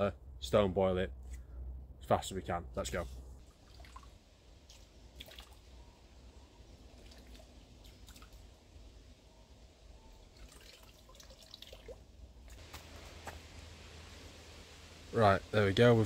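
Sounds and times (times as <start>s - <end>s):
water dripping and trickling: 3.4s - 16.0s.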